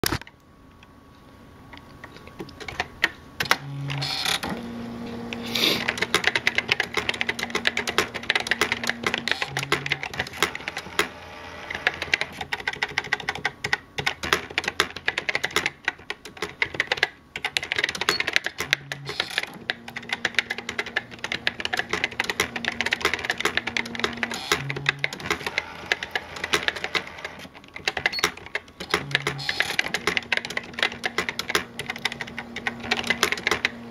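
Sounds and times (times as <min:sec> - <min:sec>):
typewriter motor hum: 0:02.6 - 0:33.9
typewriter key clicks: 0:12.0 - 0:33.8.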